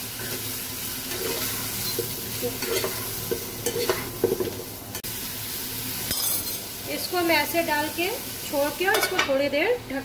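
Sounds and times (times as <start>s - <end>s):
mushrooms sizzling in oil: 0.0s - 10.0s
spatula scraping and knocking pan: 1.1s - 4.7s.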